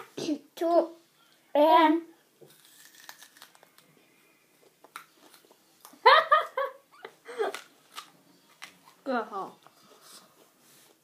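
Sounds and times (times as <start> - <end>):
onion being chewed: 2.5 - 3.9
girl giggling: 6.0 - 7.6.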